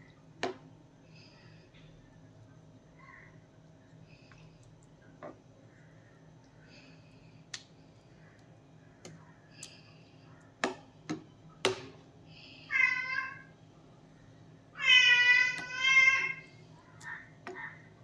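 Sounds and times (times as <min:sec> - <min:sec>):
high wavering cries: 0:14.8 - 0:17.8.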